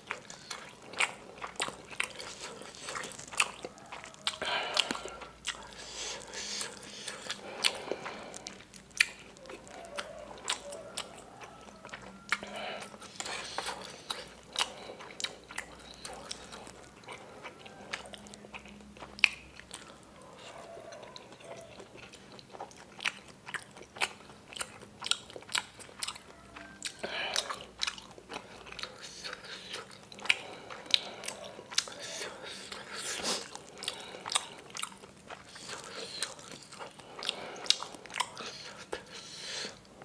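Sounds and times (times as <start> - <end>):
wet chewing and smacking: 0.0 - 40.0.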